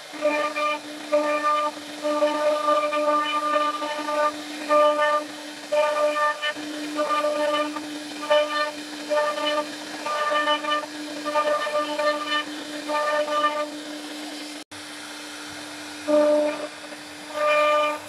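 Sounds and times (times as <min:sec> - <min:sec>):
router spindle high whine: 0:00.0 - 0:13.8.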